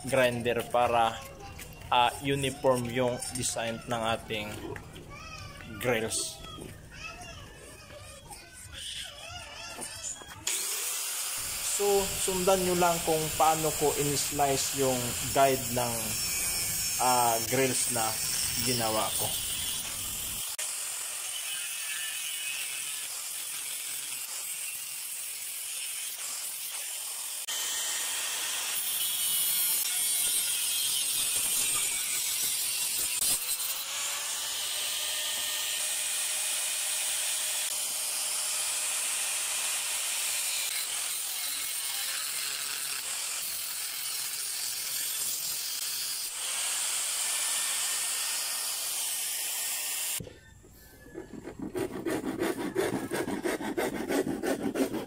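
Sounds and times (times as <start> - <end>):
angle grinder cutting steel: 10.1 - 50.3, 51.0 - 55.0.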